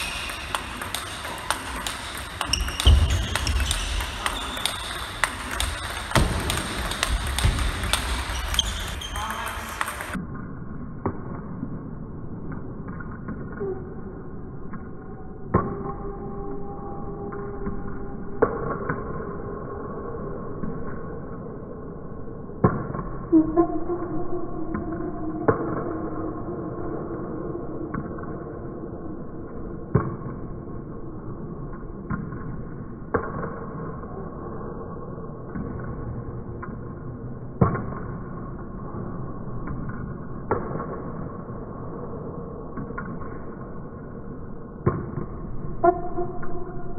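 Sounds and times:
table tennis ball knocking: 0.0 - 10.2
low muffled hall hum: 0.0 - 18.2.

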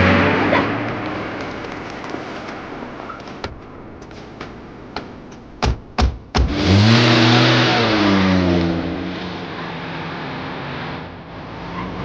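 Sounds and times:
car engine revving: 0.0 - 3.9, 6.2 - 12.0
car doors slamming: 5.0 - 6.7.

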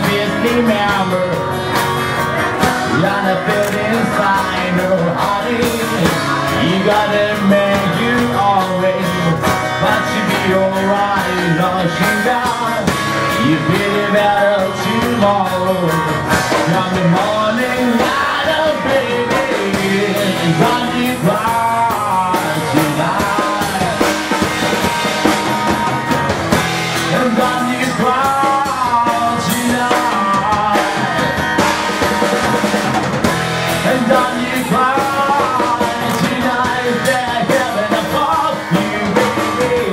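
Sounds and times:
drum kit: 0.0 - 39.9
man singing: 0.0 - 39.9
strummed acoustic guitar: 0.0 - 39.9.

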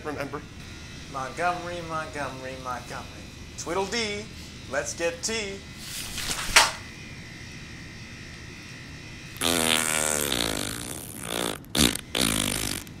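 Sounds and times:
long buzzy fart: 9.4 - 13.0
short sputtering fart bursts: 9.4 - 13.0.

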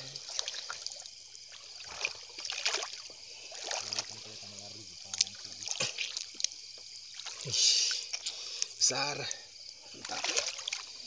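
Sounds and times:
hand splashing in water: 0.0 - 4.2, 10.0 - 11.0
water dripping: 0.0 - 8.9, 9.9 - 11.0.

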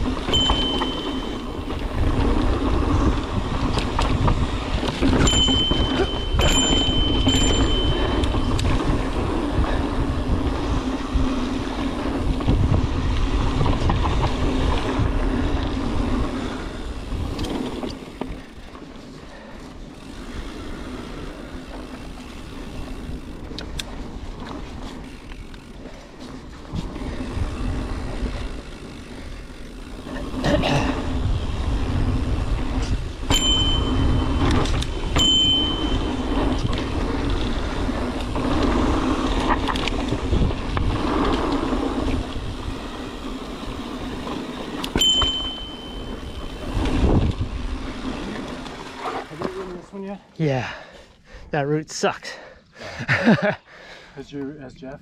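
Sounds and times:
wind on microphone: 0.0 - 17.5, 45.0 - 48.2
tyres rumbling on dirt: 0.0 - 18.5, 19.5 - 49.9
bike jolt: 0.0 - 49.9
bike rattle: 0.0 - 50.9.

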